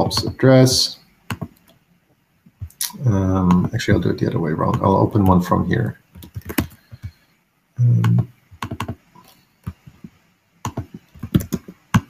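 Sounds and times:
typing on computer keyboard: 0:01.3 - 0:01.8, 0:06.1 - 0:07.2, 0:08.0 - 0:09.0, 0:10.6 - 0:12.0.

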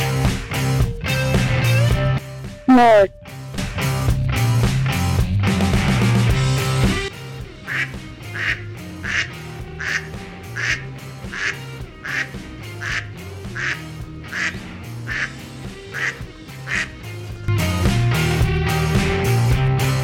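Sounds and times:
background music: 0:00.0 - 0:20.0
duck quacking: 0:02.7 - 0:03.1, 0:07.6 - 0:17.0.

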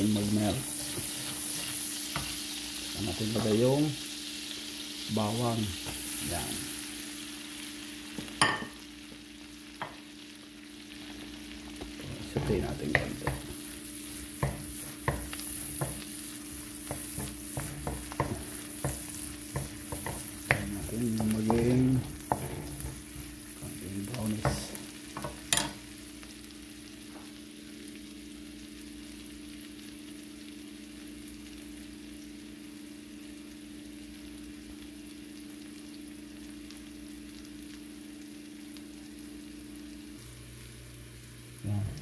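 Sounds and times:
garlic sizzling in butter: 0:00.0 - 0:42.0
wooden spatula scraping a pan: 0:00.1 - 0:02.5, 0:11.9 - 0:25.4.

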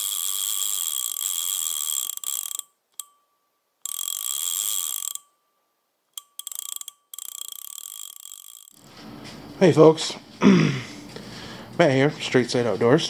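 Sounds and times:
steady high ring: 0:03.0 - 0:04.0.

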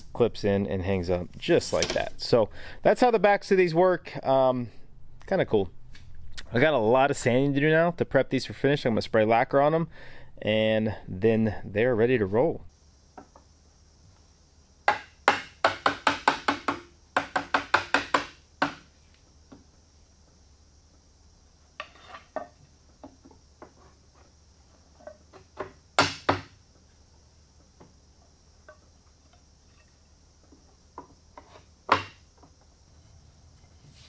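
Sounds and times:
mallet tapping wood: 0:14.8 - 0:18.9
knocks of wood on wood: 0:14.9 - 0:18.9, 0:25.0 - 0:26.6, 0:30.5 - 0:32.6.

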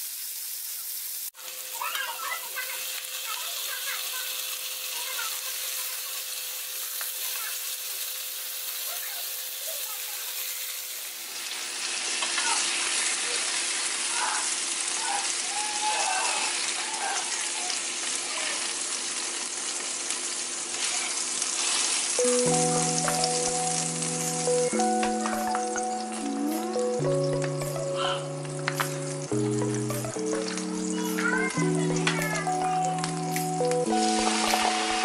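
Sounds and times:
meat sizzling in frying pan: 0:00.0 - 0:35.0
background music with chords: 0:22.2 - 0:35.0.

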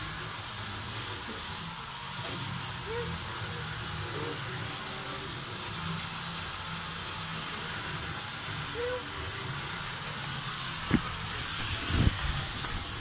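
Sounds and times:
steady hissing noise: 0:04.1 - 0:13.0.

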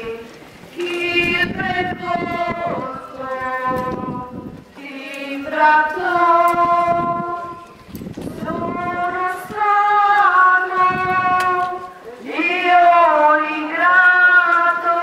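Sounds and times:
women and children singing a hymn: 0:00.0 - 0:15.0.

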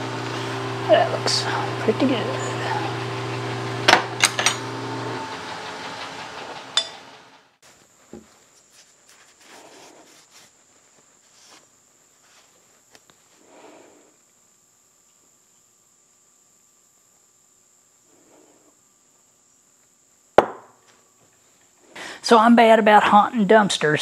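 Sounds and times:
lathe motor hum: 0:00.0 - 0:07.6
high insect drone: 0:00.9 - 0:03.5, 0:07.6 - 0:24.0.

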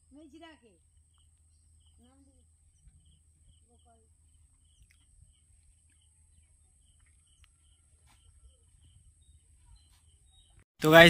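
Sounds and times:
faint rural outdoor ambience: 0:00.0 - 0:11.0
faint clicks: 0:07.0 - 0:08.2.

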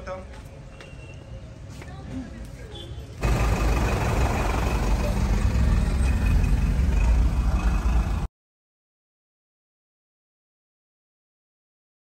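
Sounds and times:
rumble of motor vehicles: 0:00.0 - 0:08.3.

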